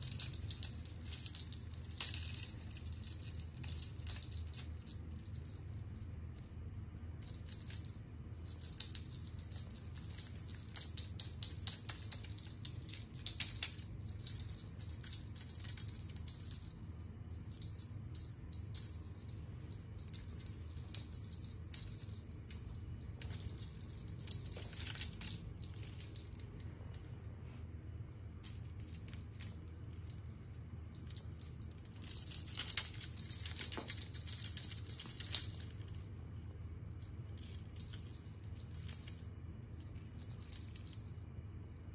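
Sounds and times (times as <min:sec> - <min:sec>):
small jingle bell jingling: 0:00.0 - 0:27.2, 0:28.1 - 0:41.9.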